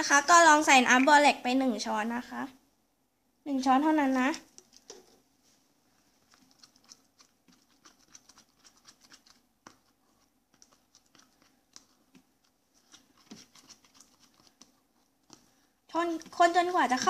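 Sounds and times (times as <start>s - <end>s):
spoon stirring slime: 3.8s - 17.0s.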